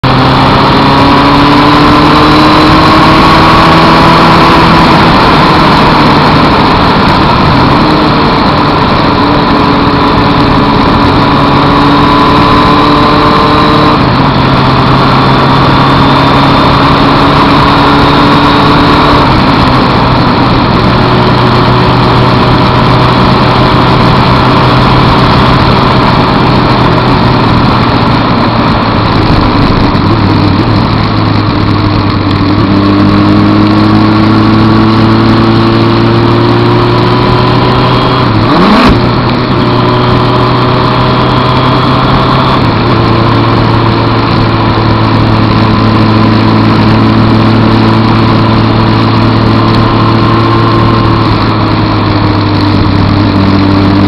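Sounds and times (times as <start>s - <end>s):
motorcycle engine running: 0.0s - 54.0s
rush of wind: 0.0s - 54.0s
wet road noise: 23.0s - 37.1s, 37.7s - 53.7s.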